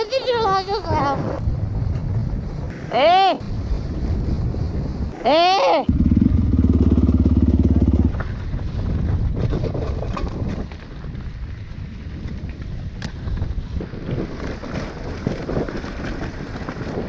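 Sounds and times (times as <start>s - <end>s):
wind rumbling on microphone: 0.0s - 17.0s
dirt bike engine running: 5.9s - 17.0s.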